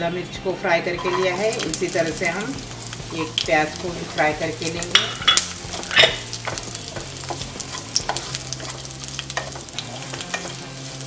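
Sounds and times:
onion sizzling in oil: 0.9 - 11.0
spatula scraping a pan: 1.0 - 11.0.

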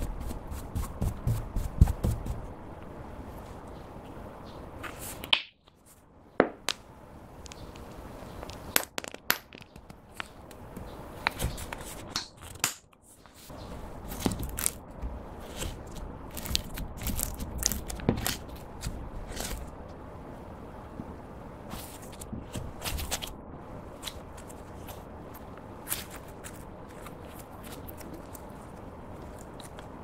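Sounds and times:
slime crackling and crunching: 14.1 - 14.8, 15.4 - 19.7.

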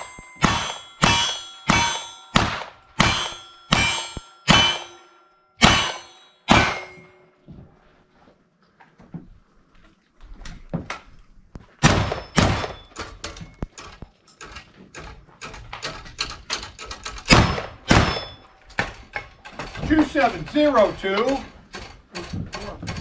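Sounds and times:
gunshots: 0.0 - 5.0, 5.6 - 7.0, 11.8 - 12.9, 17.3 - 18.3
bullets ringing on steel plates: 0.0 - 7.4, 11.8 - 13.8, 16.6 - 21.9.

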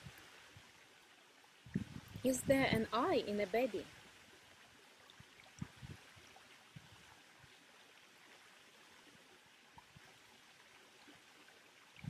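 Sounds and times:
soft low thumps: 1.7 - 3.0, 5.2 - 7.0.

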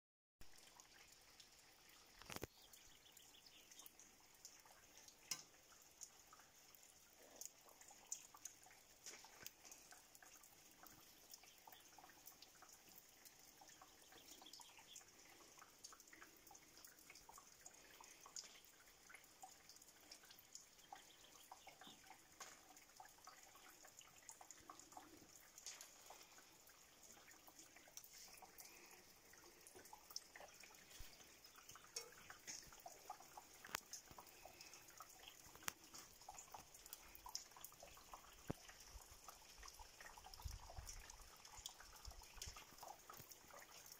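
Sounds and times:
raindrops ticking: 0.4 - 43.9
faint rain hiss: 0.5 - 43.9.

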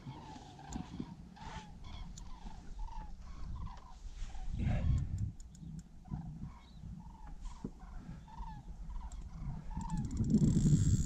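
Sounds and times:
sharp clicks: 5.0 - 5.9.

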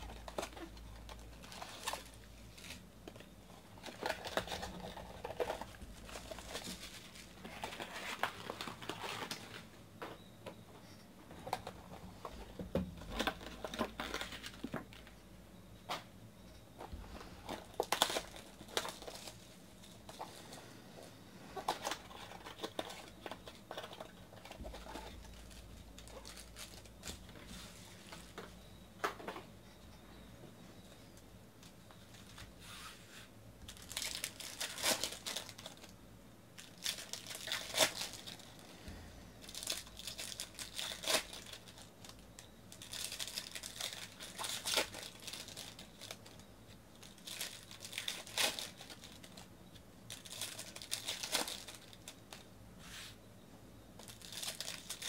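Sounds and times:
foil packs crinkling and tearing: 0.0 - 9.7, 13.0 - 15.1, 17.4 - 20.6, 21.6 - 27.5, 33.7 - 36.0, 36.6 - 38.6, 39.4 - 49.5, 50.1 - 52.5, 54.0 - 55.0.

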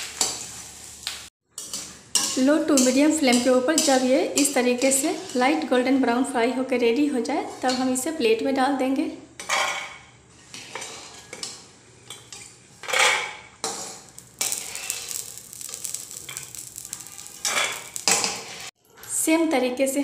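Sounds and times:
soft sizzle of frying: 0.0 - 20.0
metal spoon scraping a wok: 0.1 - 0.9, 1.6 - 5.7, 9.4 - 18.7.

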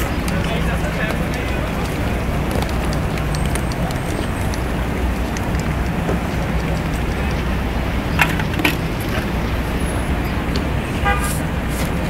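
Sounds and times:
city traffic rumble: 0.0 - 12.0
car horn toot: 11.0 - 11.4.

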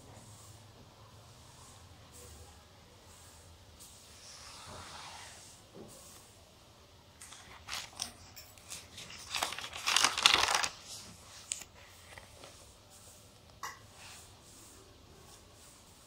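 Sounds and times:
paper pages rustling: 7.2 - 12.7.

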